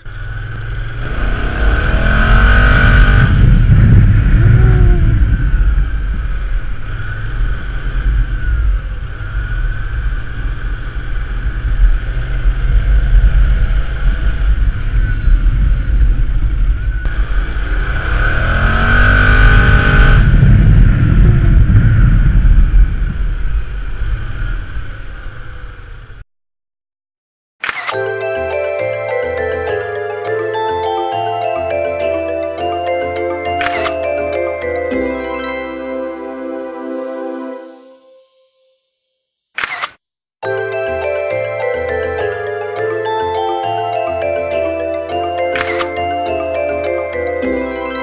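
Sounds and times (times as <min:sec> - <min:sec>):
scooter engine accelerating: 0:00.0 - 0:22.9
wind rumble on microphone: 0:01.0 - 0:26.2.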